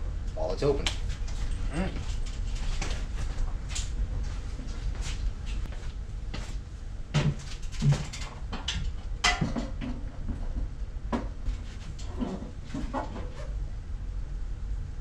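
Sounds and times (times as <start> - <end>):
water heater casing knocks and scrapes: 7.1 - 13.5.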